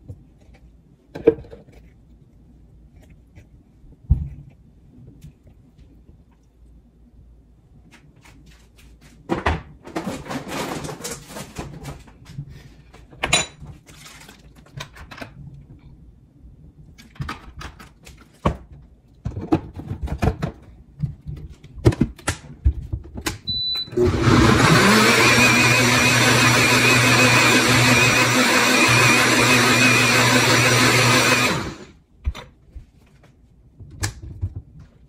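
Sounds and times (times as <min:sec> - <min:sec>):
knocks and clatter of handling: 0:17.0 - 0:23.4, 0:32.2 - 0:35.0
appliance motor running: 0:24.0 - 0:31.9.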